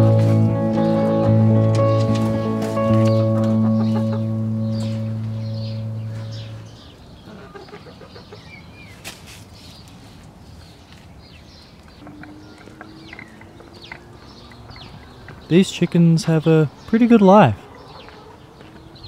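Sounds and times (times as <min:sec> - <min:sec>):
background music: 0:00.0 - 0:06.8
hens clucking: 0:02.0 - 0:05.1, 0:07.2 - 0:08.6
faint low steady tone: 0:03.2 - 0:06.7.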